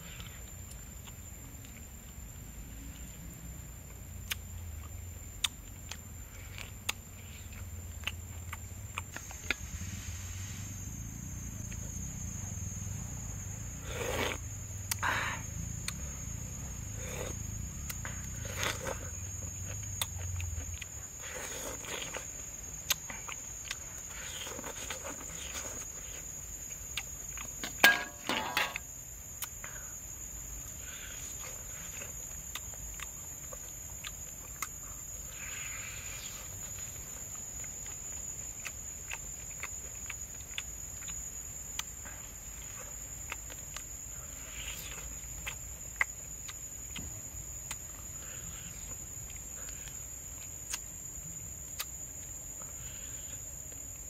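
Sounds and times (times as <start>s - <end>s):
insects droning: 0.0s - 54.0s
man chewing and lip smacking: 3.8s - 9.8s, 15.6s - 27.6s, 30.2s - 54.0s.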